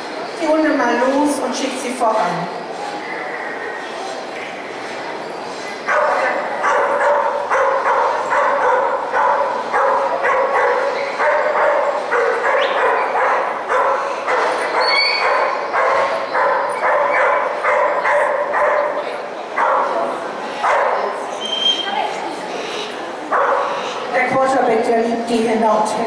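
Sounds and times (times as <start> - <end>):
dog barking: 5.9 - 20.0, 20.6 - 21.2, 23.3 - 23.8.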